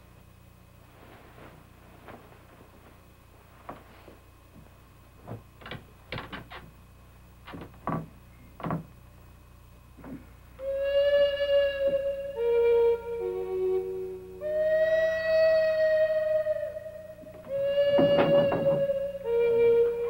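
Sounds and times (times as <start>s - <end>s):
knocks and bumps of movement: 7.4s - 9.0s
held flute note: 10.6s - 20.0s.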